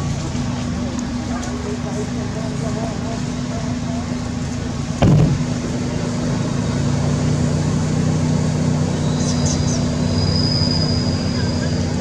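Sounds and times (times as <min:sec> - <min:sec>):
motor engine humming: 0:00.0 - 0:10.2
sudden loud burst: 0:05.0 - 0:05.6.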